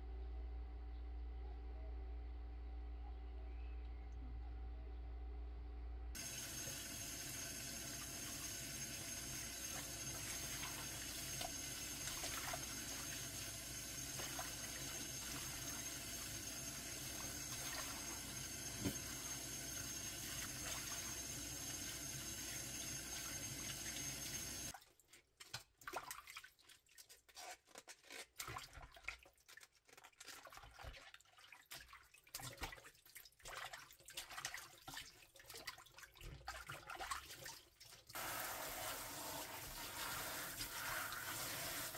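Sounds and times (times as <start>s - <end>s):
faucet water running into sink: 6.2s - 24.8s, 33.5s - 41.9s.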